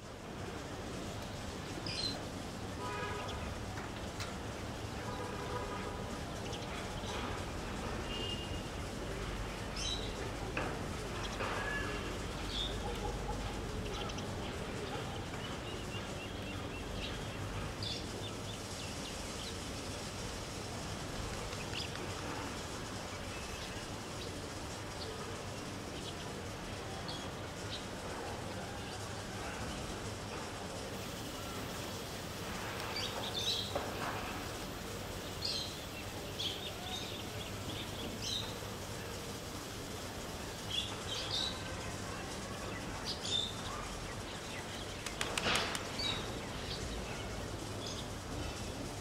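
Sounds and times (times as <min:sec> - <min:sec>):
low rumble and hiss: 0:00.0 - 0:49.0
steady background noise: 0:00.0 - 0:49.0
birds chirping: 0:29.4 - 0:48.9.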